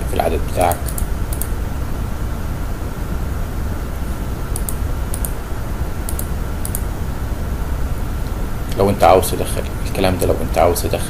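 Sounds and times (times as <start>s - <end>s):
steady low hum: 0.0s - 11.0s
computer keyboard clicks: 0.8s - 1.5s, 4.5s - 5.4s, 6.1s - 6.9s.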